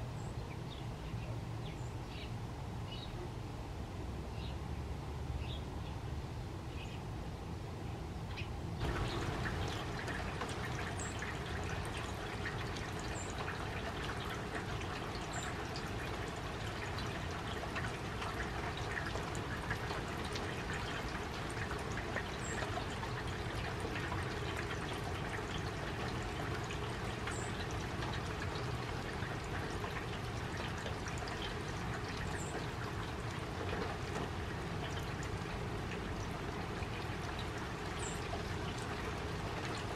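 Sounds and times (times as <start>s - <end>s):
rain splashing into puddle: 8.8s - 39.9s.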